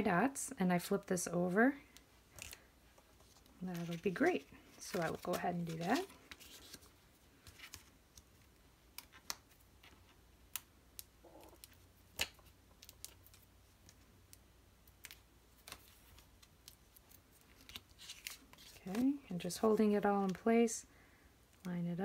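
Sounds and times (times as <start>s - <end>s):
cardstock paper handling: 3.2s - 10.0s, 15.0s - 20.4s.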